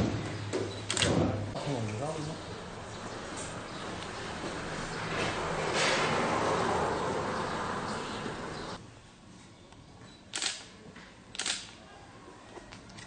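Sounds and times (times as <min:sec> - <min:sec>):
sharp clicks: 0:10.3 - 0:10.7, 0:11.3 - 0:11.8.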